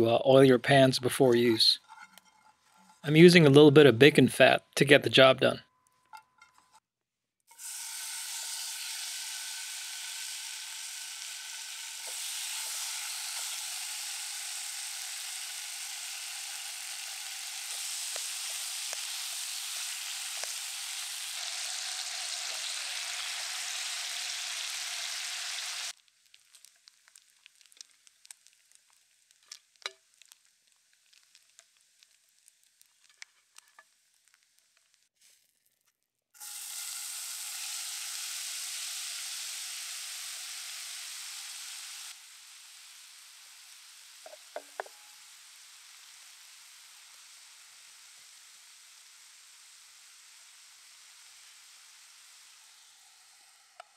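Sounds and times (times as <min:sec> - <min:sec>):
bacon sizzling in a pan: 0:01.8 - 0:03.1, 0:07.5 - 0:53.9
faint crackles and pops: 0:16.6 - 0:21.0, 0:25.9 - 0:36.4.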